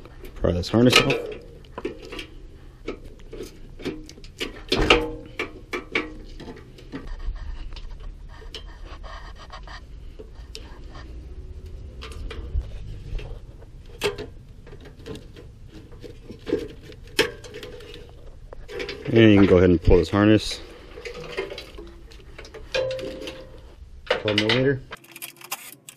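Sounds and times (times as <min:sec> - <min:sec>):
low rumble: 0:07.3 - 0:14.8.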